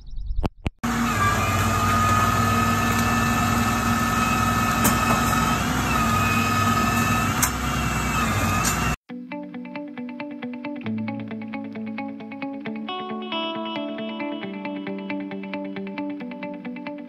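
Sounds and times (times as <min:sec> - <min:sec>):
truck engine running: 0:00.8 - 0:09.0
winch whine: 0:00.8 - 0:09.0.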